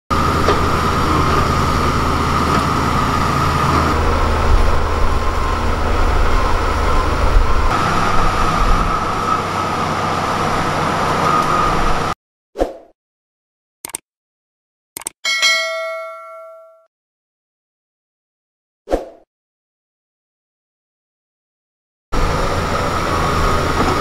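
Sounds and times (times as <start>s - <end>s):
bulldozer diesel rumble: 0.1s - 12.2s, 22.2s - 24.0s.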